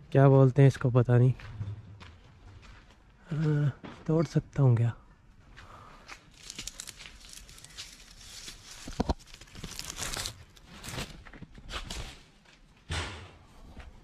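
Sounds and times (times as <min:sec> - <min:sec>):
leaves and twigs rustling: 0:06.0 - 0:12.1
twig snapping: 0:06.1 - 0:10.4.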